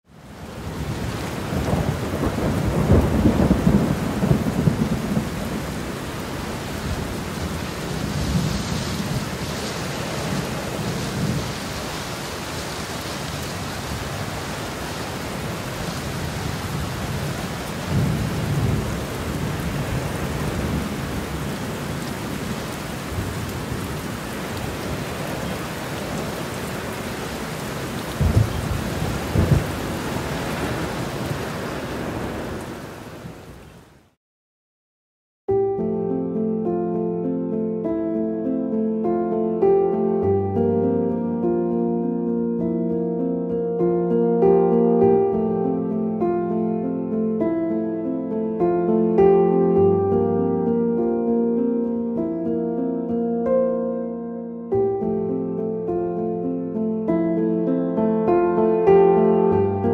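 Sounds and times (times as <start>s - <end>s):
steady rain: 0.1s - 34.2s
low rolls of thunder: 0.5s - 33.4s.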